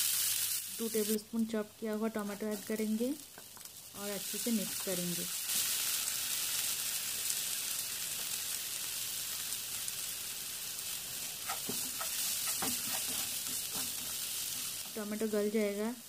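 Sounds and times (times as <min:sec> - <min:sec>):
vegetables sizzling in oil: 0:00.0 - 0:16.0
spatula scraping pan: 0:11.2 - 0:14.9.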